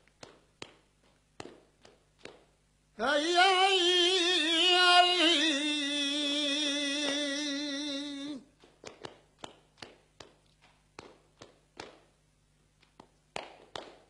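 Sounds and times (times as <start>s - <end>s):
sharp hand claps: 0.0s - 2.6s, 8.6s - 12.2s, 12.8s - 14.0s
man singing unaccompanied: 3.0s - 8.5s.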